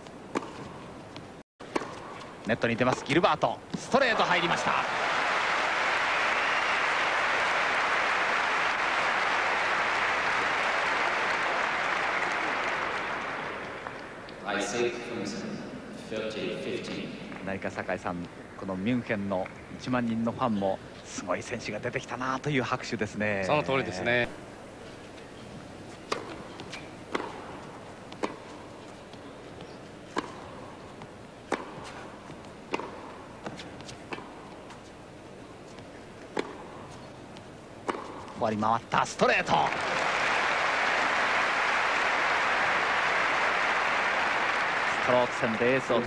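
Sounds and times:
tennis racket hitting ball: 0.3s - 0.8s, 1.6s - 4.2s, 25.8s - 38.4s
crowd applauding: 4.1s - 14.3s, 39.4s - 46.0s
steady low hum: 7.1s - 46.0s.

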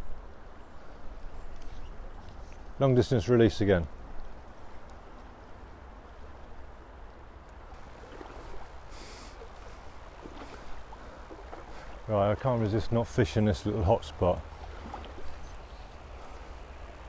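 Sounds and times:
soft hiss: 0.0s - 17.0s
river water rushing: 7.7s - 17.0s.

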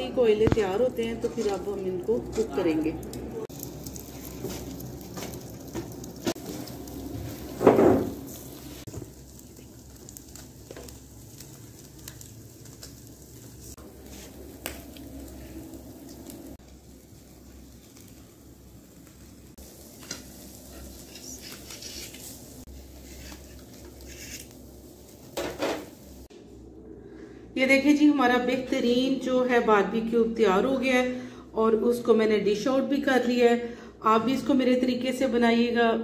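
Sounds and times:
meat sizzling over charcoal grill: 0.0s - 26.3s.

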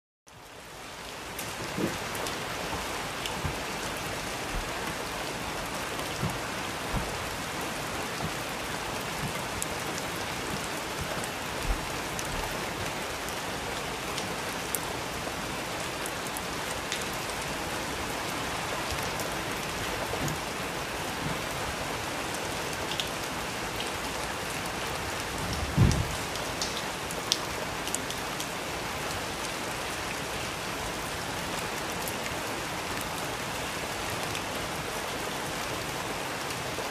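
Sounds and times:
steady rain falling: 0.3s - 36.9s
low thuds: 2.7s - 7.6s.

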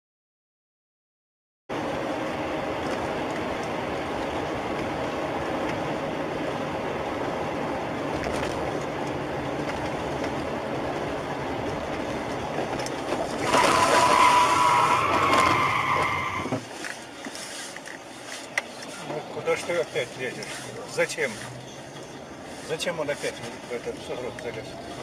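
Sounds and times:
car road and engine noise: 1.7s - 25.0s
tyre squeal: 13.4s - 16.7s.

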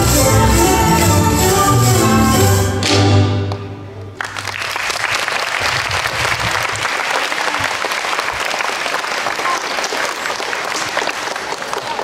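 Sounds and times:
music: 0.0s - 4.2s
audience applause: 4.2s - 12.0s.

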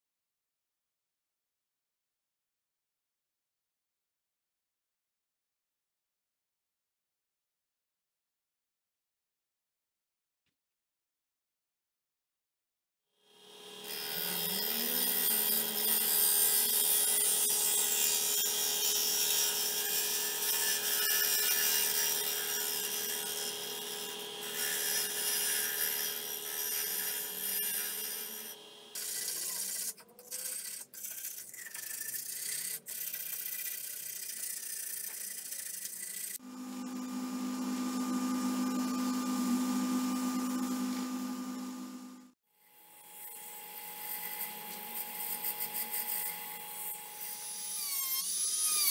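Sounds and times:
lathe motor humming: 36.4s - 42.3s.

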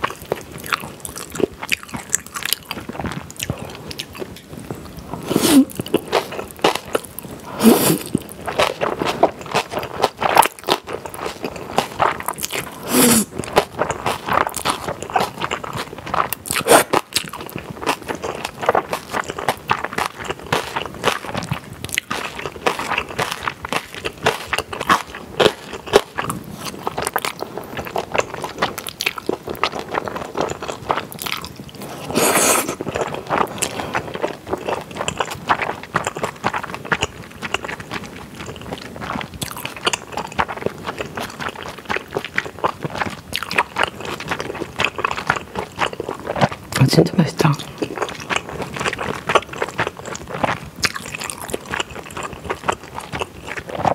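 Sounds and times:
wet chewing and biting: 0.0s - 53.9s
noodle slurping: 5.1s - 6.2s, 7.4s - 8.2s, 12.6s - 13.5s, 16.5s - 17.1s, 31.8s - 37.7s.

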